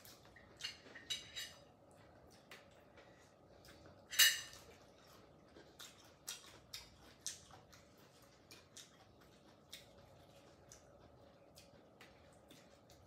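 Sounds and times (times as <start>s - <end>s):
chopsticks on dishes: 0.6s - 1.6s, 4.1s - 4.6s
chewing clicks: 5.0s - 13.0s.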